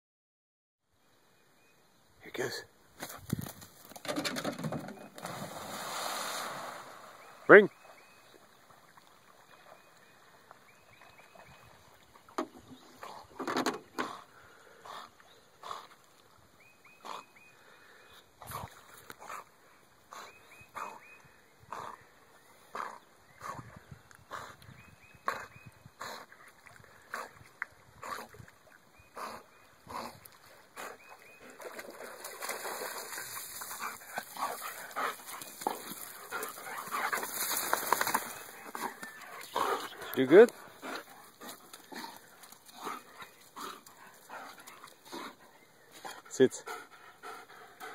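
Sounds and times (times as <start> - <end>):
dog swimming strokes: 26.2 - 46.9
dog splashing in water: 31.5 - 39.7
water sloshing: 31.5 - 45.1
dog breathing: 46.0 - 47.9.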